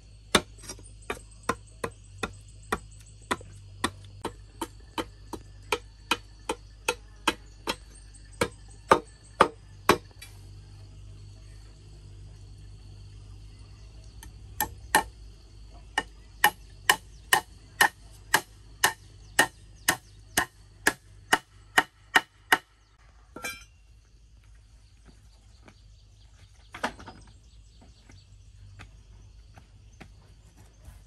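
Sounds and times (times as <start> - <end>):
hammer striking nail into wood: 1.1 - 10.1, 16.0 - 22.7.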